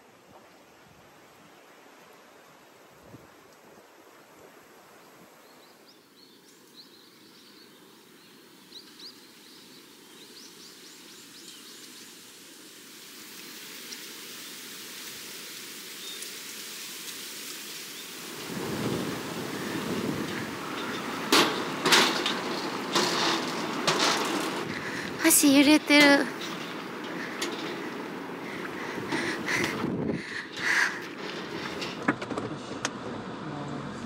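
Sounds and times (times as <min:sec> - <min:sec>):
rush of wind: 0:17.3 - 0:34.0.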